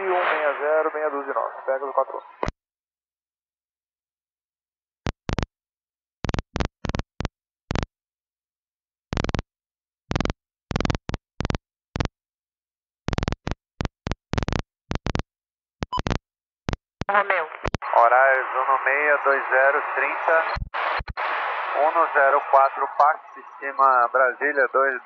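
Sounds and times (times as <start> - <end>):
radio static bursts: 0.0 - 2.3, 17.1 - 25.0.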